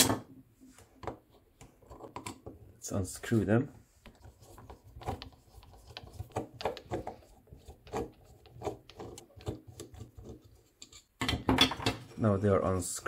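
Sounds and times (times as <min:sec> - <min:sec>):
screwdriver clicking and scraping: 0:04.3 - 0:11.3.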